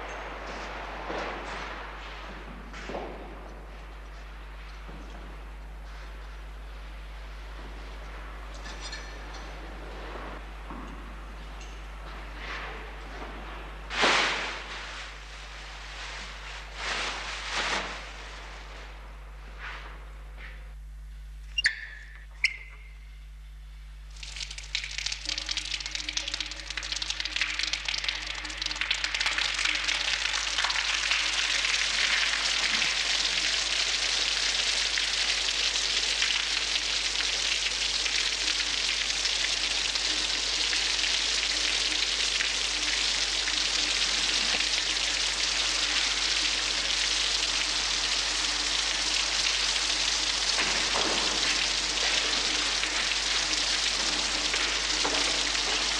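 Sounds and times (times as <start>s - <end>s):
shower spraying water: 13.9s - 18.6s, 24.1s - 55.9s.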